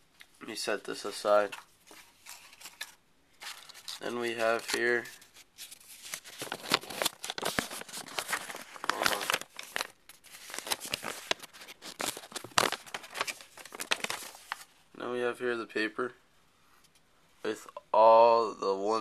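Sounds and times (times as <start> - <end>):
tissue paper crinkling: 1.8 - 14.7.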